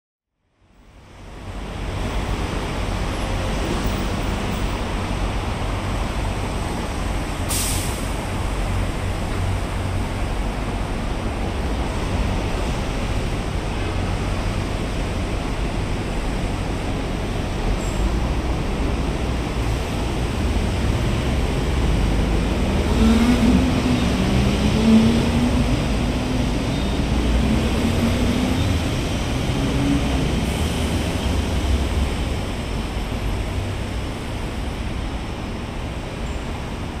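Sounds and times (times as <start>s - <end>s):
road traffic rumble: 0.6s - 37.0s
bus air-brake hiss: 7.5s - 8.2s.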